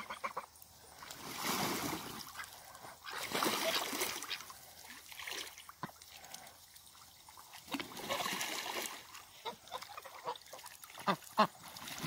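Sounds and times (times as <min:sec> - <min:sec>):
geese and ducks calling: 0:00.0 - 0:00.5
water splashing: 0:00.0 - 0:12.0.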